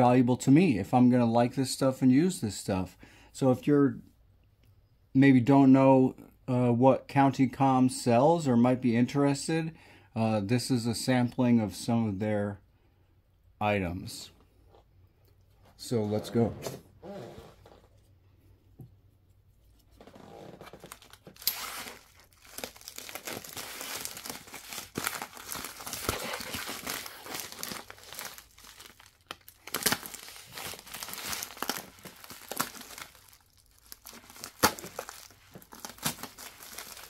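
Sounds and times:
plastic envelope crinkling: 0:19.9 - 0:37.0.

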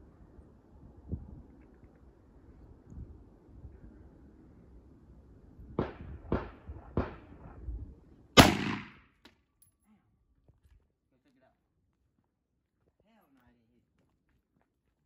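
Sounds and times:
gunshots: 0:08.4 - 0:09.0.

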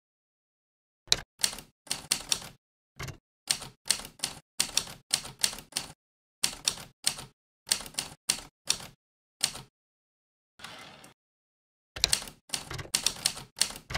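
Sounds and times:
typewriter keys clacking: 0:01.4 - 0:09.7, 0:12.0 - 0:13.9.

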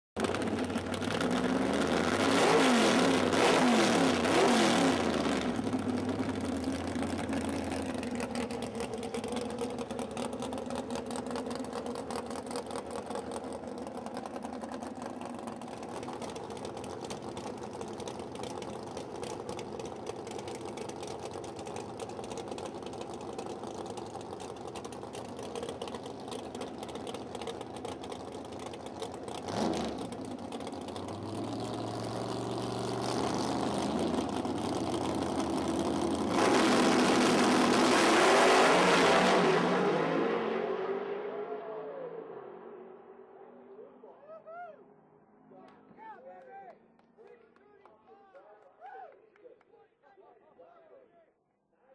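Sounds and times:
race car engine idling: 0:00.2 - 0:02.2, 0:05.0 - 0:36.3
race car engine revving: 0:00.2 - 0:43.9.

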